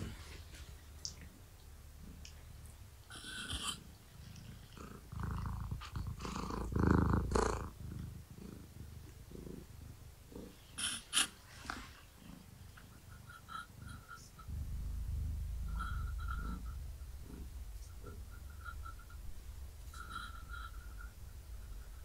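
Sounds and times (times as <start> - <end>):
cat purring: 0.0 - 22.0.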